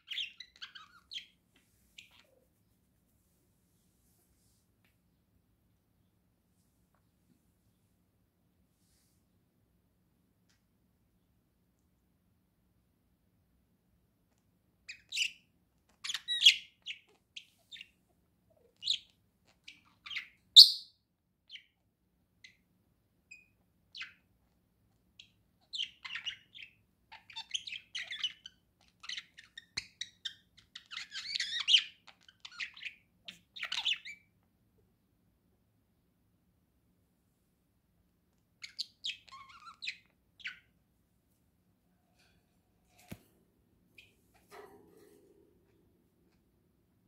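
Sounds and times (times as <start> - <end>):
budgerigar chirping and warbling: 0.0 - 1.3, 16.0 - 17.1, 18.8 - 20.9, 25.2 - 34.3, 38.6 - 40.7.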